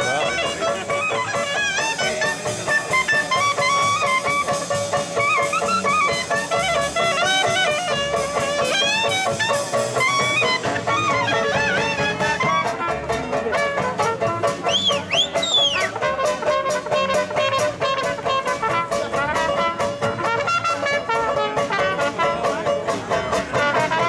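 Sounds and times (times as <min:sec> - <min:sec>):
banjo: 0:00.0 - 0:24.0
clarinet: 0:00.0 - 0:24.0
double bass: 0:00.0 - 0:24.0
drum kit beat: 0:00.0 - 0:24.0
trumpet: 0:00.0 - 0:24.0.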